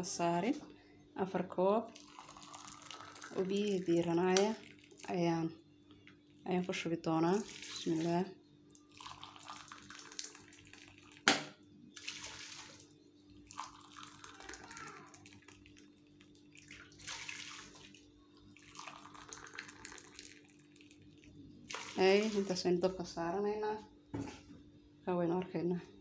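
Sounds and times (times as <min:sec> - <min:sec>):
water pouring into pot: 0:01.9 - 0:05.2, 0:07.3 - 0:11.4, 0:12.0 - 0:22.6.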